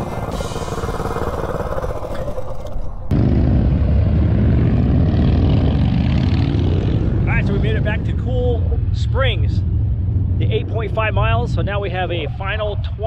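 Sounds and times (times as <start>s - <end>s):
small engine running: 0.0s - 3.1s.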